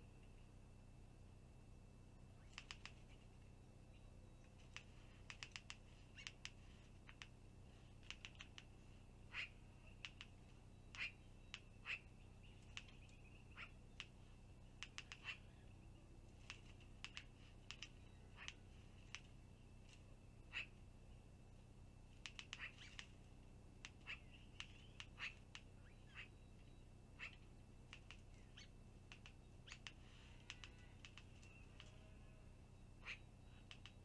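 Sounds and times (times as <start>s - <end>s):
steady background hiss: 0.0s - 34.0s
magpie chattering: 2.4s - 3.1s, 4.7s - 7.3s, 9.3s - 10.3s, 10.9s - 14.1s, 14.8s - 15.6s, 16.5s - 19.2s, 20.5s - 20.8s, 22.2s - 23.1s, 23.8s - 26.4s, 27.1s - 32.0s, 33.0s - 34.0s.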